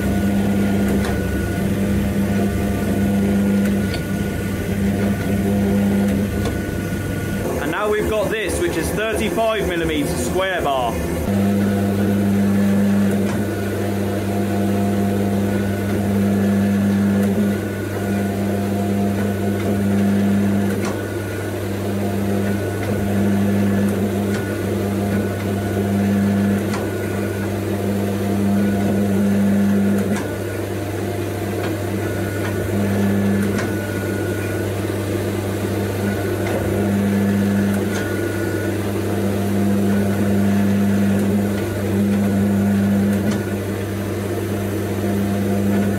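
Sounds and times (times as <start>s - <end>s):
hydraulic press pump motor humming: 0.0s - 45.9s.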